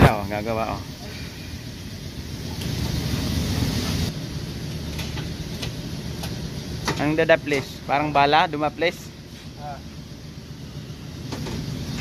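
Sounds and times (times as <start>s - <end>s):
hiss: 0.1s - 4.1s.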